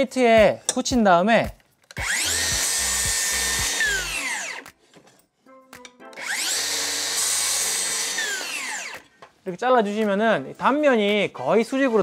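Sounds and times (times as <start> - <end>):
circular saw cutting board: 2.0 - 4.8, 6.2 - 9.1.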